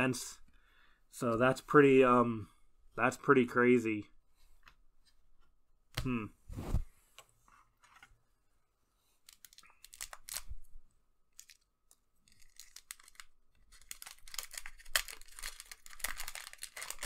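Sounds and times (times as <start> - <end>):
foil wrapper crinkling and tearing: 9.3 - 10.6, 11.3 - 17.0.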